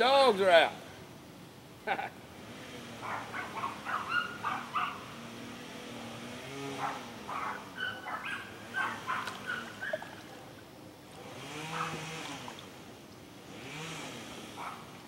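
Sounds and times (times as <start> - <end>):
chainsaw revving: 2.3 - 3.0, 5.1 - 7.3, 11.1 - 14.8
dogs barking: 3.0 - 5.2, 6.8 - 10.6, 11.7 - 12.0, 14.6 - 14.9.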